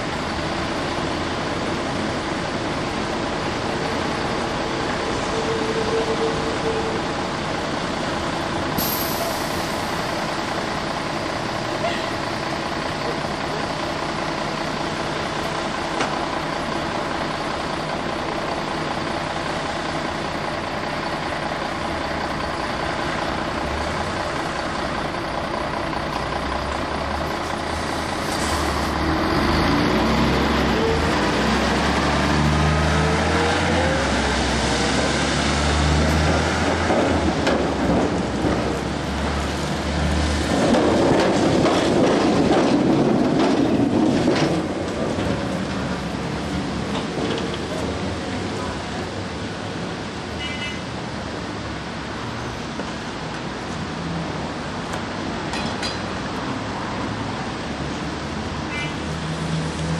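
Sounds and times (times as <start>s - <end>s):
tram wheels rumbling and grinding: 0.0s - 59.9s.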